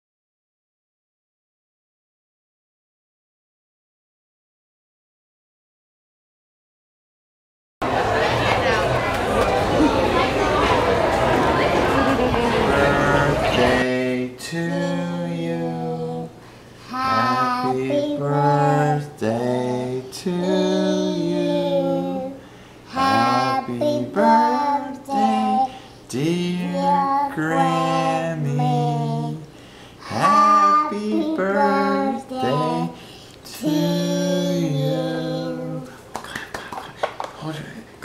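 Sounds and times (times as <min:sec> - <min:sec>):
person singing unaccompanied: 0:12.4 - 0:36.0.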